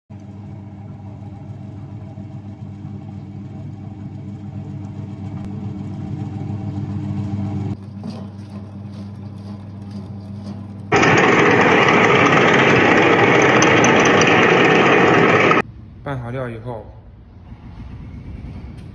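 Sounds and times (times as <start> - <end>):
electric motor hum: 10.8 - 15.6.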